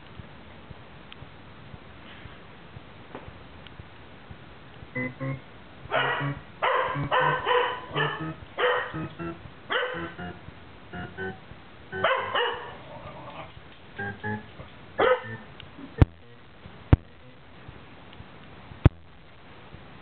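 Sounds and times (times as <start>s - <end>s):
faint music from video: 0.0s - 20.0s
dog barking: 5.9s - 9.1s, 9.7s - 10.1s, 12.0s - 13.5s, 15.0s - 15.4s.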